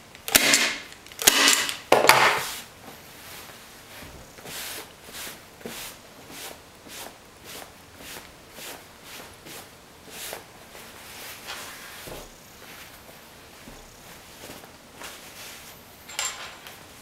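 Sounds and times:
gloved hand rubbing fabric: 2.4s - 15.8s.

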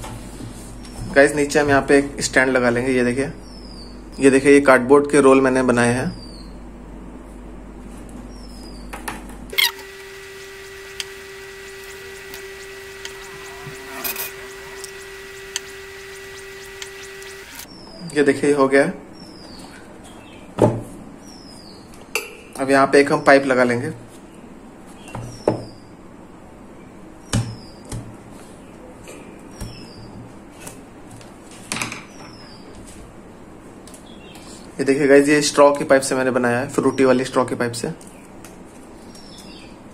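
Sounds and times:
faint hum: 9.5s - 18.1s.

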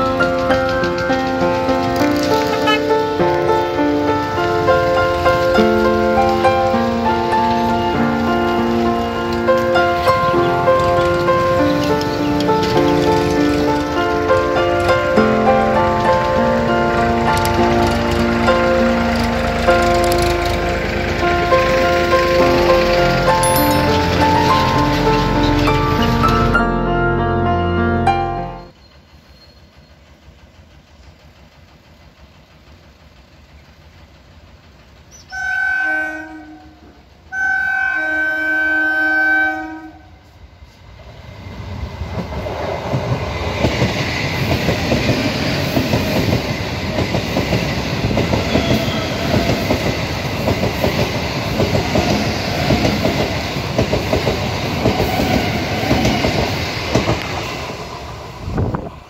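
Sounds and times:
train wheels rumbling over rails: 0.0s - 26.6s, 28.6s - 37.4s, 40.2s - 59.0s
train horn blasts: 2.4s - 3.2s, 35.3s - 40.4s, 48.4s - 49.7s.

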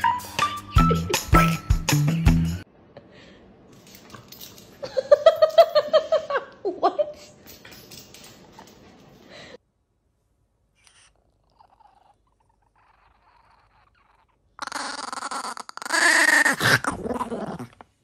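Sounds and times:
dog growling: 11.0s - 17.9s.

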